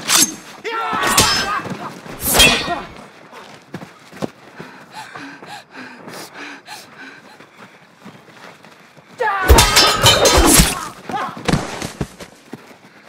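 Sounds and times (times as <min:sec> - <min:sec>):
person yelling: 0:09.2 - 0:09.9
flurry of hits and crashes: 0:09.5 - 0:10.9.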